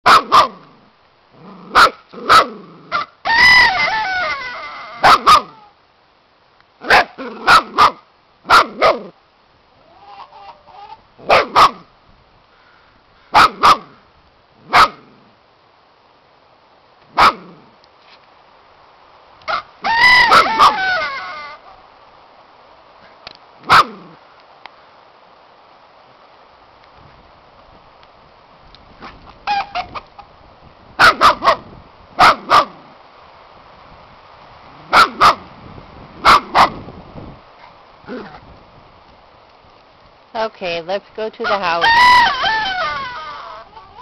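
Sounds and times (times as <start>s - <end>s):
puppy barking: 0.0s - 0.6s, 1.7s - 3.1s, 5.0s - 5.6s, 6.8s - 9.1s, 11.2s - 11.8s, 13.3s - 13.9s, 14.7s - 15.0s, 17.2s - 17.5s, 20.1s - 21.0s, 23.6s - 24.0s, 31.0s - 31.6s, 32.2s - 32.8s, 34.9s - 35.4s, 36.2s - 36.8s
puppy drawn-out calls: 1.7s - 5.7s, 9.8s - 11.9s, 19.5s - 21.8s, 23.6s - 24.2s, 32.2s - 32.8s, 34.9s - 35.5s, 41.4s - 44.0s.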